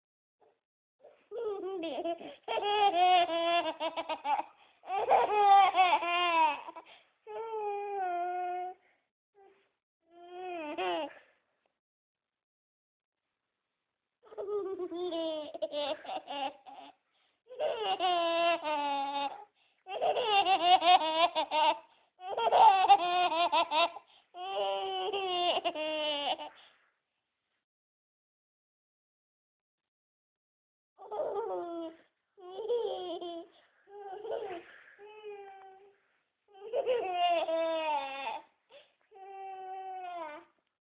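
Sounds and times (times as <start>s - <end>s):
toddler giggling: 1.4s - 6.8s, 14.3s - 16.9s, 17.6s - 26.5s, 31.1s - 35.8s
young child giggling: 34.1s - 34.8s.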